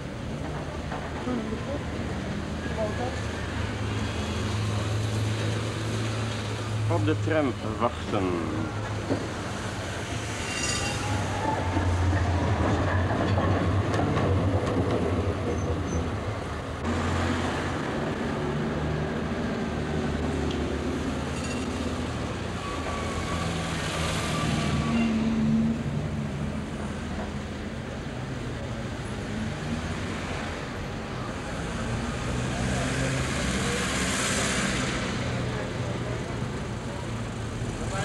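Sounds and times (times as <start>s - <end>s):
tram rumbling on rails: 0.0s - 38.0s
high-pitched wheel squeal: 10.3s - 12.1s, 22.6s - 25.4s.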